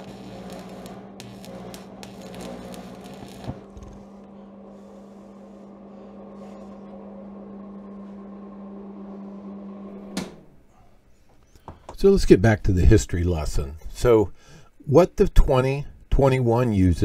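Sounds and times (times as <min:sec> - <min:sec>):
welding machine humming: 0:00.0 - 0:10.1.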